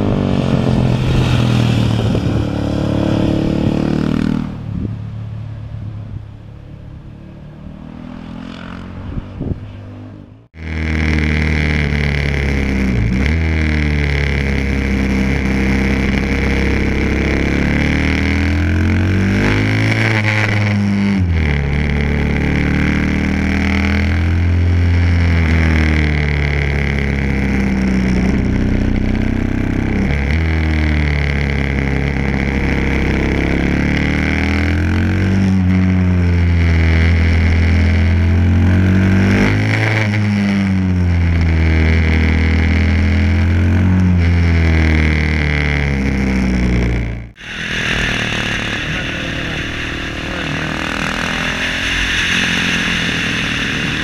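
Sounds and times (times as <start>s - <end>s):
motorcycle engine revving: 0.0s - 54.0s
roadside ambience: 0.0s - 54.0s.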